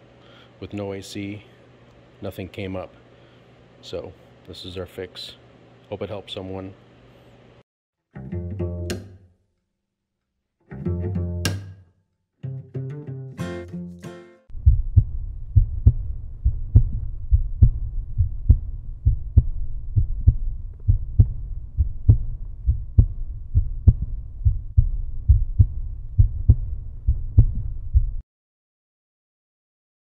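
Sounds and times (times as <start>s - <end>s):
deep thudding rhythmic beat: 14.5s - 28.2s.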